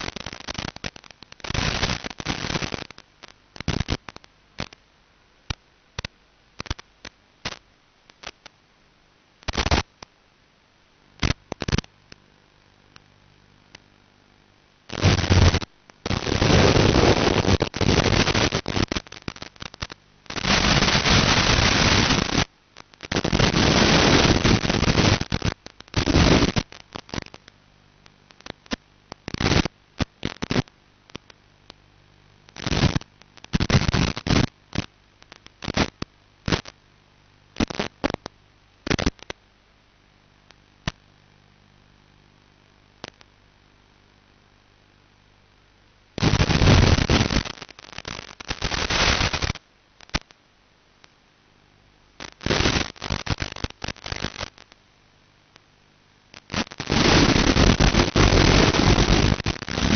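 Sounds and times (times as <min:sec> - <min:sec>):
bursts of static hiss: 0:00.0 - 0:59.9
faint hum: 0:00.0 - 0:59.9.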